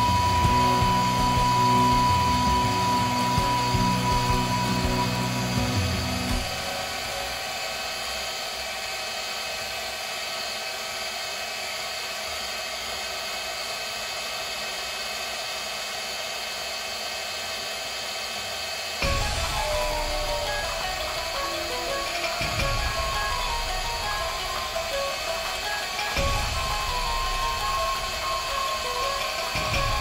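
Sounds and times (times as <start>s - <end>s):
electric hand mixer whining: 0.0s - 30.0s.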